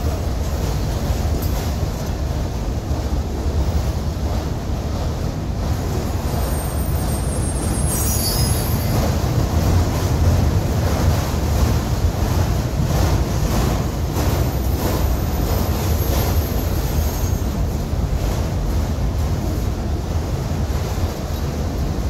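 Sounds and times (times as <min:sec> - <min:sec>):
train wheels rumbling on rail: 0:00.0 - 0:22.0
high wheel squeal: 0:06.1 - 0:09.3, 0:15.1 - 0:17.7
wheel clacks over rail joints: 0:07.8 - 0:22.0.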